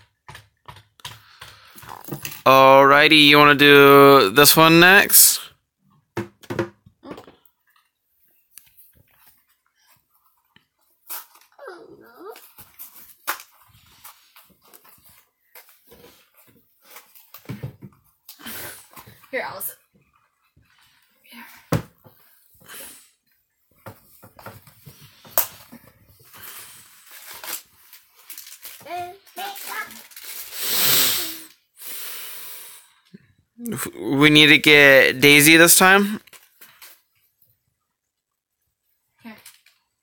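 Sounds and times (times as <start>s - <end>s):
packaging clicks and rustles: 24.6s - 30.5s.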